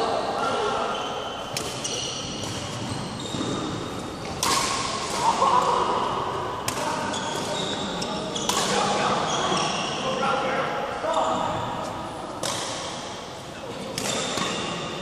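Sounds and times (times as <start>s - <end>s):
shoes squeaking on court floor: 0.4s - 4.5s, 6.9s - 10.1s
racket striking shuttlecock: 1.5s - 2.8s, 4.2s - 5.7s, 8.4s - 8.9s, 12.4s - 13.1s.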